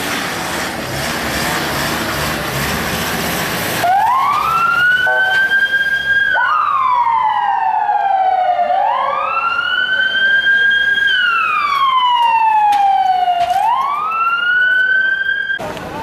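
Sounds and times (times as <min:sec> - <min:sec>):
ambulance siren wailing: 0:03.8 - 0:15.6.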